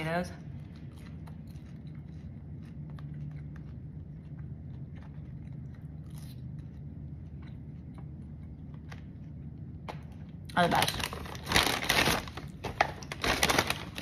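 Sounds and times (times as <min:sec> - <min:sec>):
steady low hum: 0:00.0 - 0:14.0
person chewing: 0:00.5 - 0:10.5.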